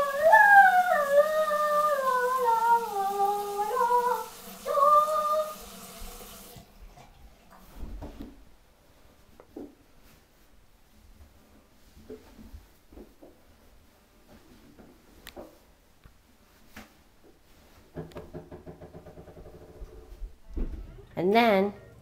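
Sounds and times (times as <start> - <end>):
person humming: 0.0 - 5.6
shower water running: 0.0 - 8.2
faint knocks: 17.9 - 21.1.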